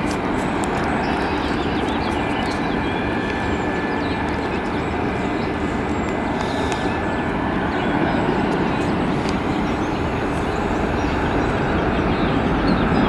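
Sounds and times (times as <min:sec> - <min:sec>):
outdoor background roar: 0:00.0 - 0:13.0.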